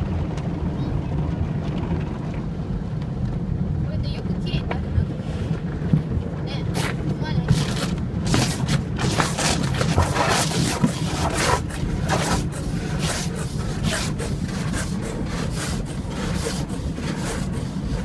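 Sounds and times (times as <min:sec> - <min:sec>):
low hum of wash machinery: 0:00.0 - 0:18.0
car wash brushes swishing over car: 0:05.0 - 0:18.0.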